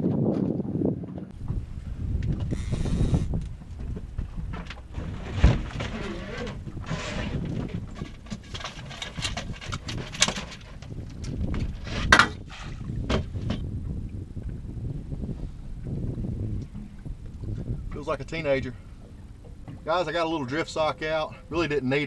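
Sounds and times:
fishing gear clattering on deck: 3.4s - 13.6s.

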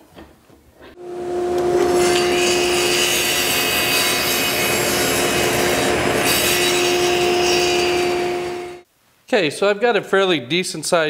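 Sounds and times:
table saw cutting wood: 1.0s - 8.8s.

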